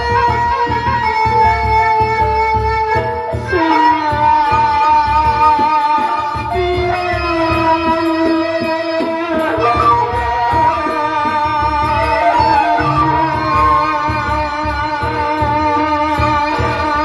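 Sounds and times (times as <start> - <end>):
wavering gamelan melody: 0.0 - 17.0
man singing into microphone: 3.5 - 17.0
large drums beating: 6.4 - 17.0.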